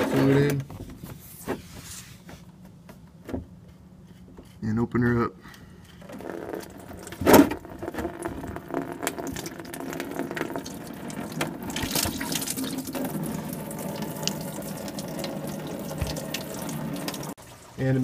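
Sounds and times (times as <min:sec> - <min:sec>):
coolant pouring into plastic pan: 0:06.0 - 0:17.8.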